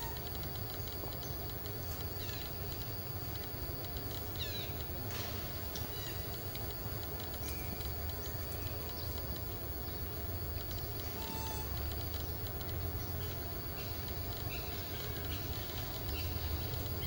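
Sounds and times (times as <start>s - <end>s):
insects ticking: 0.0s - 17.0s.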